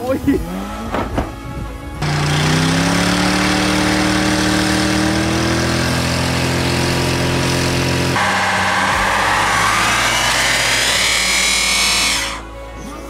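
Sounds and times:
engine at high revs: 0:00.3 - 0:01.4, 0:02.0 - 0:12.5
wheels spinning: 0:02.0 - 0:12.5.

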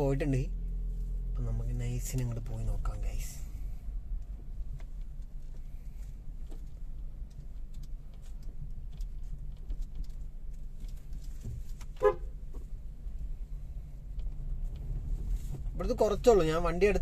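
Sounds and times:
car engine and tyres rumbling: 0:00.0 - 0:17.0
car horn toot: 0:12.0 - 0:12.4.

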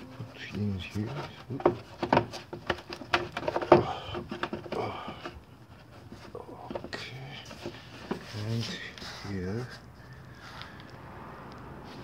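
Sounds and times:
light rustling and taps: 0:00.8 - 0:09.9
plastic parts clacking: 0:01.1 - 0:08.4.

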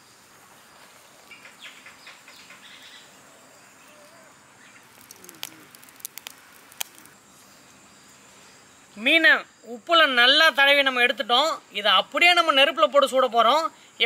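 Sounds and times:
faint birds chirping: 0:00.0 - 0:10.4
sharp clicks: 0:04.9 - 0:07.2.

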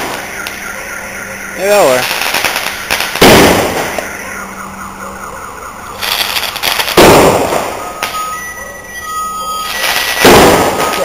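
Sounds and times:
fireworks bangs with echo: 0:00.0 - 0:00.7, 0:01.6 - 0:04.6, 0:06.0 - 0:08.4, 0:09.6 - 0:11.0
fireworks crackling: 0:00.0 - 0:00.7, 0:01.4 - 0:04.6, 0:05.8 - 0:11.0.

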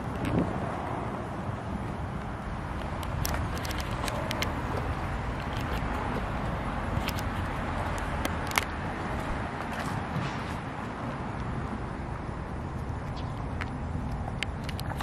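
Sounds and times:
sharp clicks: 0:02.8 - 0:08.8.

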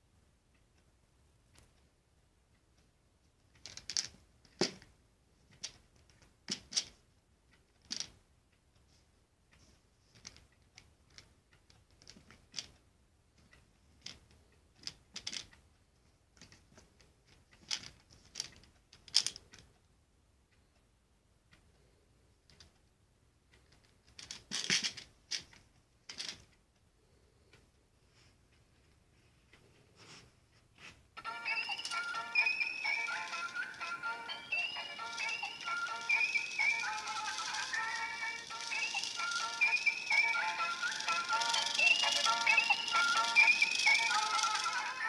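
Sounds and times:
plastic rattle: 0:24.1 - 0:25.5, 0:26.1 - 0:26.5, 0:31.6 - 0:45.0.

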